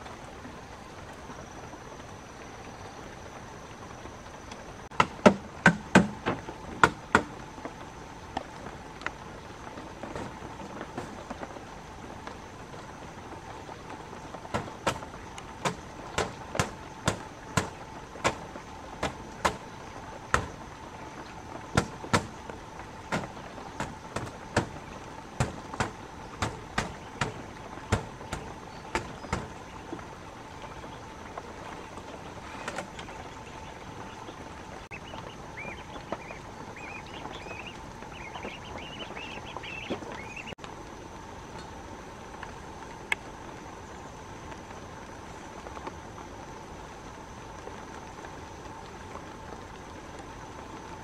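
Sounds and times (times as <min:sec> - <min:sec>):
steady background hiss: 0:00.0 - 0:51.0
sharp knocks: 0:04.9 - 0:07.4, 0:14.5 - 0:18.4, 0:21.8 - 0:22.4, 0:23.1 - 0:24.8, 0:25.4 - 0:29.6.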